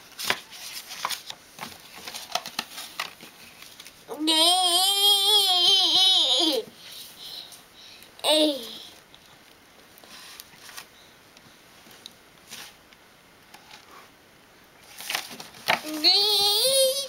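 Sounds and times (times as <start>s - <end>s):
book page rustling: 0.0s - 4.0s, 10.0s - 10.9s, 11.8s - 12.8s, 14.8s - 16.6s
toddler sing-song vocal: 4.1s - 6.7s, 15.8s - 17.0s.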